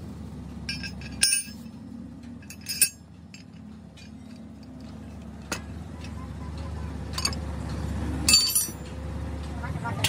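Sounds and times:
metal parts clinking: 0:00.6 - 0:06.2, 0:07.0 - 0:08.9.

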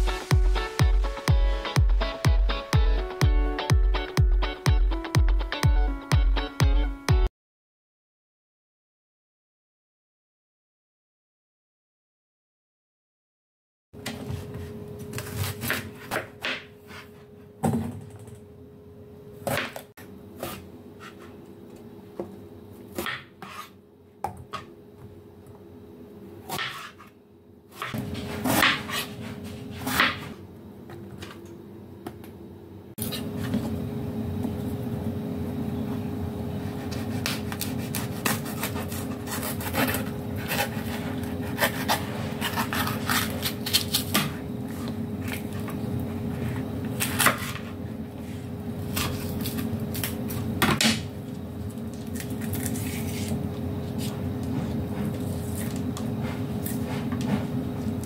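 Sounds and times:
knife chopping on cutting board: 0:15.1 - 0:17.1, 0:26.5 - 0:27.1, 0:27.8 - 0:30.4, 0:36.7 - 0:44.4.

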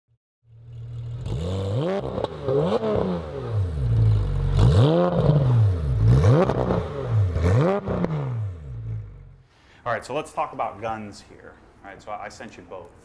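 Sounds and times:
car engine revving: 0:00.5 - 0:09.4.

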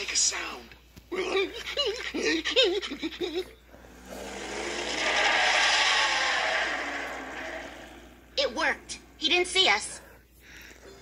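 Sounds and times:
cartoon vehicle rushing past: 0:04.0 - 0:08.4.

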